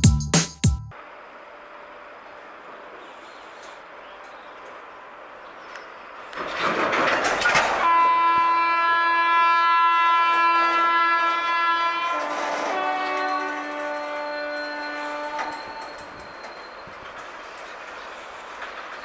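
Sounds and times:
train rushing noise: 0:00.9 - 0:19.0
train horn blast: 0:07.8 - 0:16.2.

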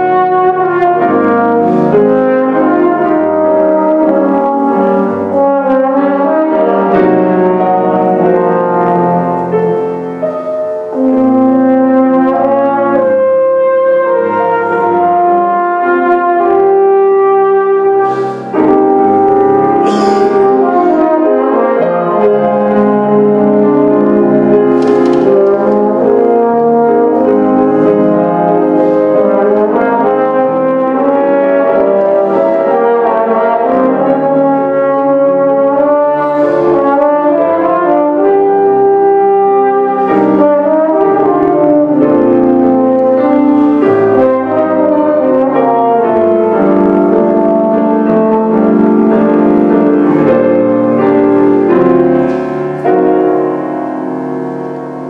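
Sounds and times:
piano accompaniment: 0:00.0 - 0:55.0
trombone slow melody: 0:00.0 - 0:55.0.

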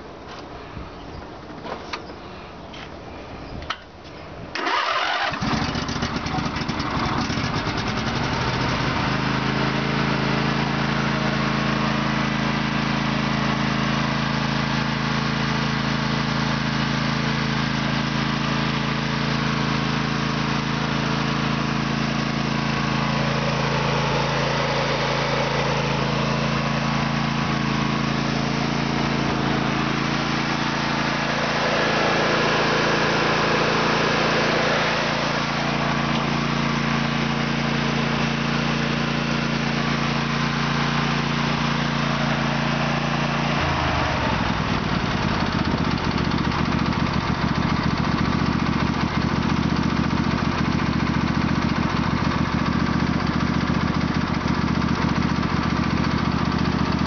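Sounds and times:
riding mower engine running: 0:03.6 - 0:57.0.

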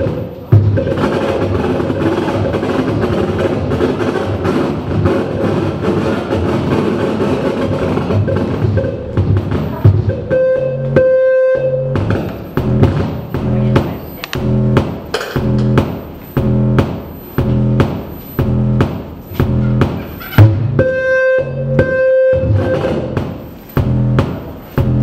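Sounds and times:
steady hum: 0:09.8 - 0:25.0
held electronic tone: 0:10.0 - 0:23.2
crackling electronic noise music: 0:10.3 - 0:25.0.

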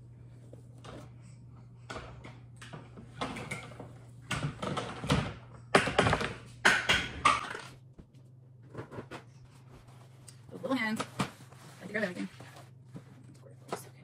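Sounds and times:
steady low hum: 0:00.0 - 0:14.0
kitchen knocks and taps: 0:01.9 - 0:07.6.

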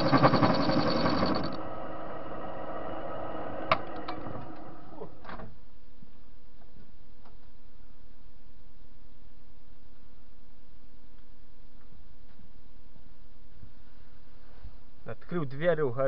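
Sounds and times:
lathe running: 0:00.0 - 0:05.0.

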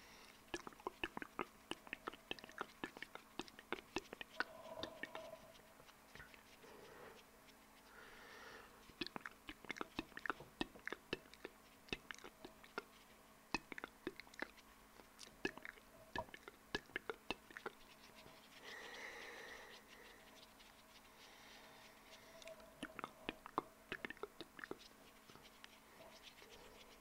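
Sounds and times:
soft breathy hissing: 0:00.0 - 0:02.8, 0:03.4 - 0:10.3, 0:17.6 - 0:27.0
wet mouth clicks and pops: 0:00.5 - 0:05.3, 0:08.9 - 0:12.9, 0:13.5 - 0:17.8, 0:22.4 - 0:24.9.

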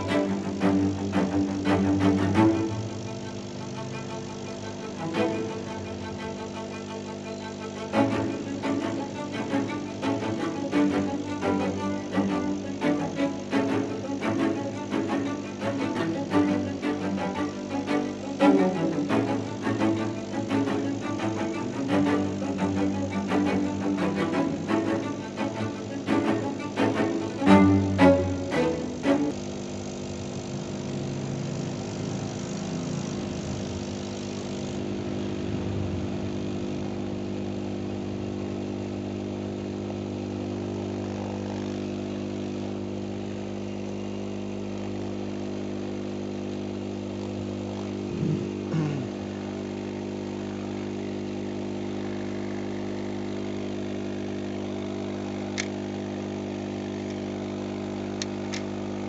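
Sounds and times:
motor humming: 0:00.0 - 0:59.0
click: 0:55.5 - 0:55.8, 0:57.0 - 0:57.2, 0:58.2 - 0:58.7.

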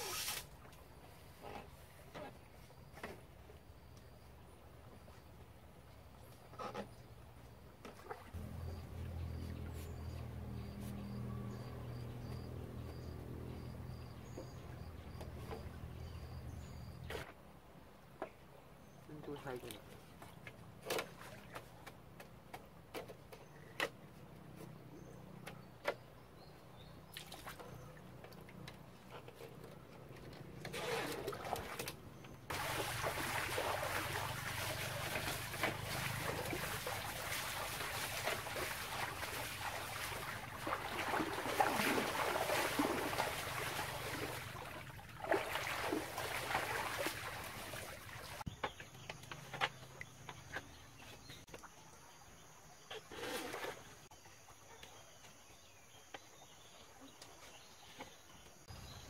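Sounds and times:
person wading through water: 0:32.5 - 0:48.4.

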